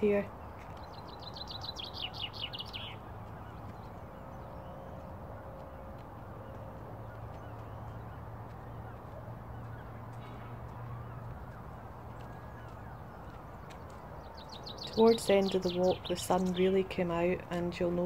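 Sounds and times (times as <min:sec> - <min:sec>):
songbird singing: 0:00.0 - 0:18.0.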